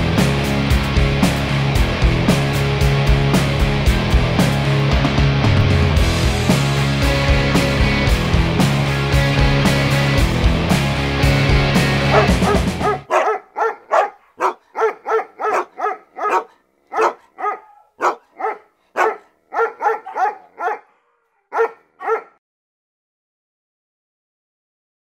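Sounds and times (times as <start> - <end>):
background music: 0.0 - 20.8
dog barking: 12.1 - 22.4.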